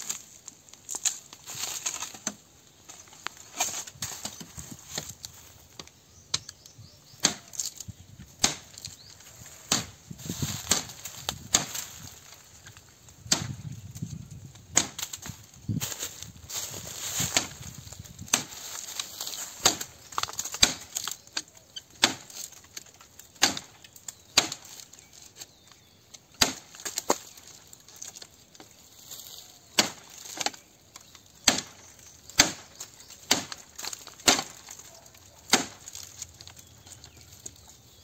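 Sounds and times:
blade chopping bamboo: 0:05.8 - 0:07.8, 0:08.4 - 0:09.0, 0:09.6 - 0:10.0, 0:10.6 - 0:12.4, 0:13.2 - 0:13.7, 0:14.7 - 0:15.3, 0:17.2 - 0:25.0, 0:26.3 - 0:28.8, 0:29.7 - 0:36.6.

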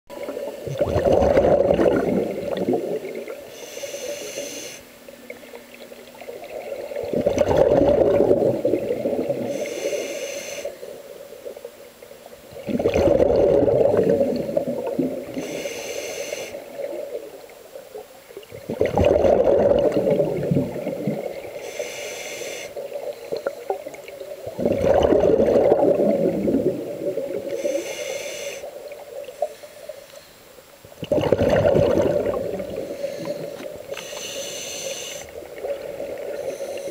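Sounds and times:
exhaled bubbles rushing: 0:00.1 - 0:03.5, 0:06.1 - 0:09.5, 0:12.5 - 0:15.4, 0:18.4 - 0:21.6, 0:23.8 - 0:27.6, 0:31.0 - 0:33.9
regulator inhale hiss: 0:03.4 - 0:05.0, 0:09.3 - 0:11.1, 0:15.2 - 0:16.9, 0:21.5 - 0:23.7, 0:27.4 - 0:30.6, 0:32.6 - 0:35.4, 0:36.2 - 0:36.9.

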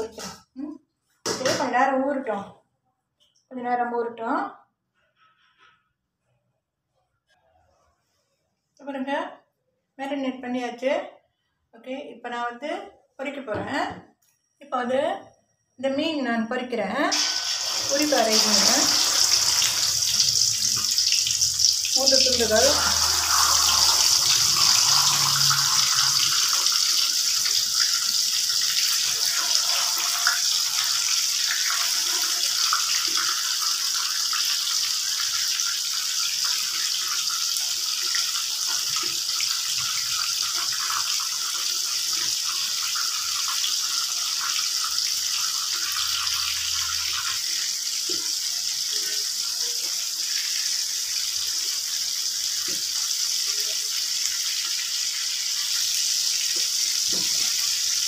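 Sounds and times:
fish sizzling in hot oil: 0:17.1 - 0:58.0.

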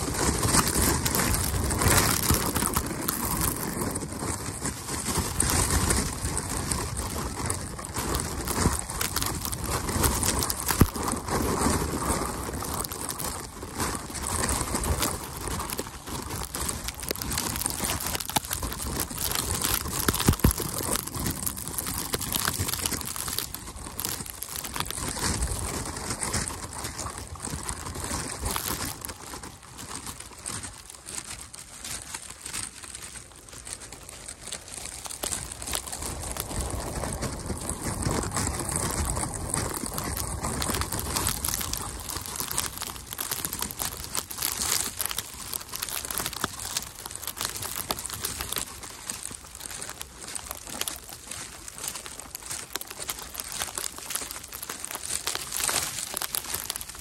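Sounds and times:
footsteps crunching through snow: 0:00.0 - 0:57.0.

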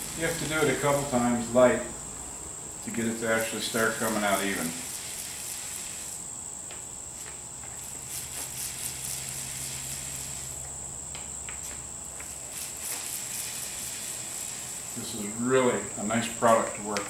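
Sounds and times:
high-pitched whine: 0:00.0 - 0:17.0
paint roller rolling: 0:02.9 - 0:06.2, 0:07.2 - 0:10.6, 0:11.6 - 0:16.9.

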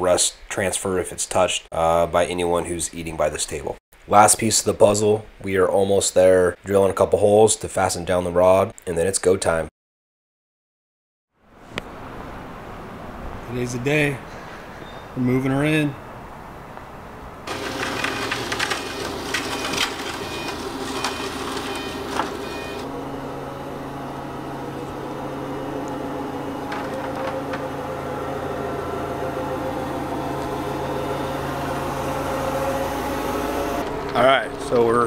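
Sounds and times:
forklift engine running: 0:17.5 - 0:35.0
load rattling and clanking: 0:26.6 - 0:27.7.

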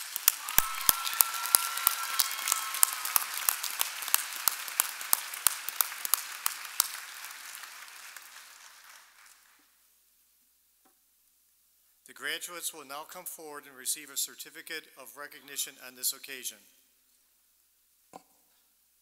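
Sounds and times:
close sharp hand claps: 0:00.0 - 0:09.7
crowd applauding: 0:00.0 - 0:09.7.

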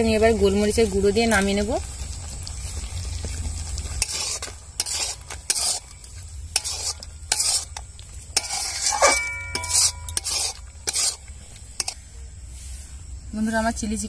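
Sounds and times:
metal spatula scraping a pan: 0:03.9 - 0:12.8.

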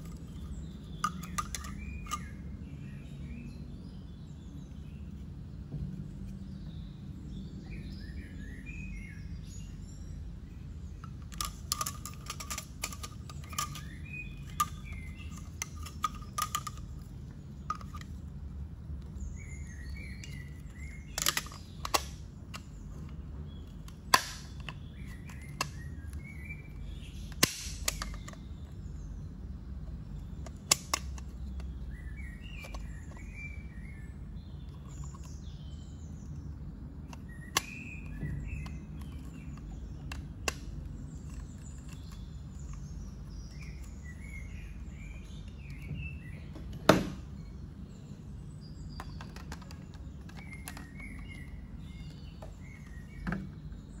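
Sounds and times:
birds chirping: 0:00.0 - 0:54.0
plastic clicks and knocks: 0:00.9 - 0:02.3, 0:11.0 - 0:18.2, 0:20.0 - 0:23.2, 0:45.2 - 0:47.2, 0:49.0 - 0:53.7.

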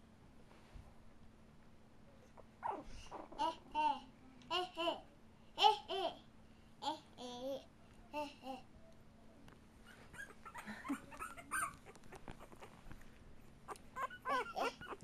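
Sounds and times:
puppies crying: 0:09.9 - 0:12.8, 0:13.7 - 0:15.0.

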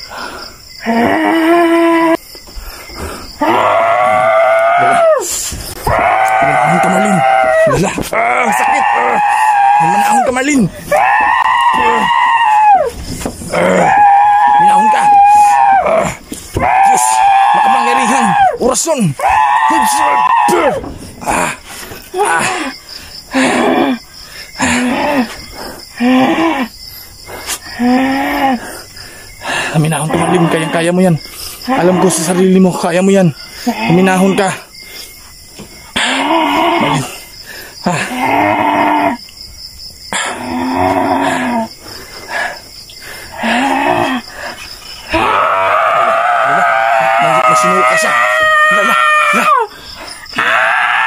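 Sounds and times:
person groaning rhythmically: 0:00.0 - 0:02.2, 0:19.8 - 0:24.0, 0:24.6 - 0:25.4, 0:26.0 - 0:26.7, 0:27.7 - 0:28.8, 0:37.8 - 0:39.2, 0:43.4 - 0:44.3
crickets chirping: 0:00.0 - 0:51.0.

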